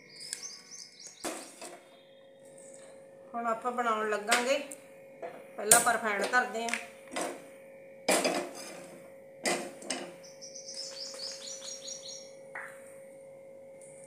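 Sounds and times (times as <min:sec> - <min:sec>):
bird chirping high notes: 0:00.0 - 0:02.4, 0:10.2 - 0:12.4.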